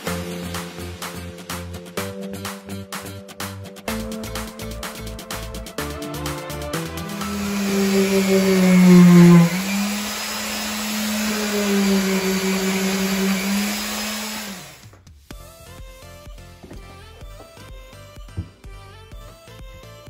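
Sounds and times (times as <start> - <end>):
electric sander on wood: 6.7 - 14.9.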